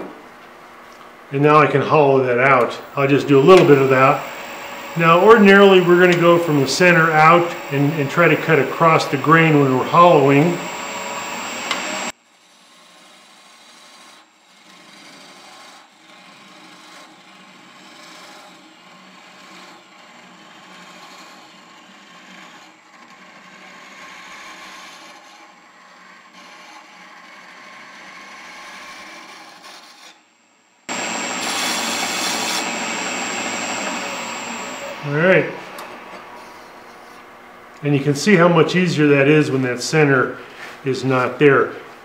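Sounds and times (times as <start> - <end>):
lathe high whine: 1.5 - 12.1, 30.9 - 42.0
gouge scraping wood on lathe: 3.3 - 30.2, 30.9 - 37.3.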